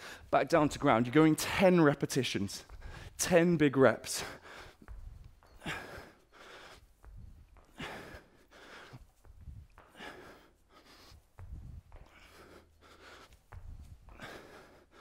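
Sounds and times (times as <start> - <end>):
man breathing hard: 0.0 - 0.3, 2.6 - 3.2, 4.1 - 15.0.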